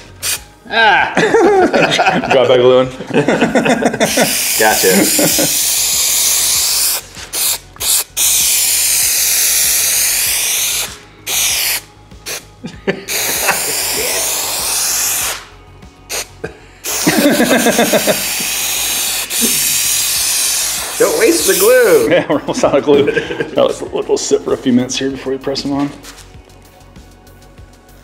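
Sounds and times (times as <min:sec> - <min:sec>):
aerosol can spraying: 0:00.0 - 0:00.5, 0:04.0 - 0:22.1.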